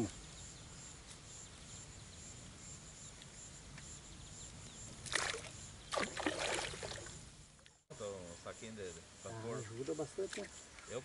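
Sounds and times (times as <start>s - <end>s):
insect chirping: 0.0s - 11.0s
splash at water's edge: 5.0s - 7.2s.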